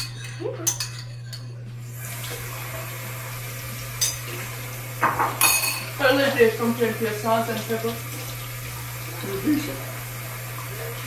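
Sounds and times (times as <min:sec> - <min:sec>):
dishes clinking: 0:00.0 - 0:01.6, 0:04.0 - 0:06.6
tap water splashing over dishes: 0:02.0 - 0:11.0.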